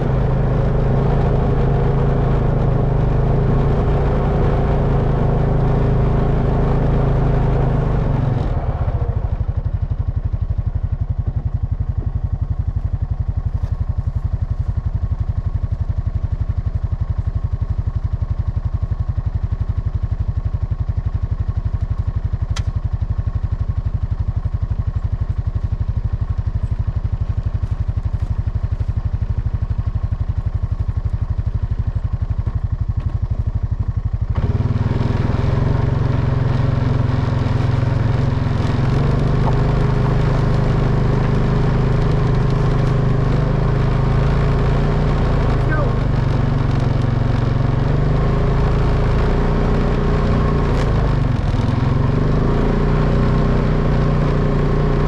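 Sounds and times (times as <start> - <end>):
atv engine idling and revving: 0.0 - 55.0.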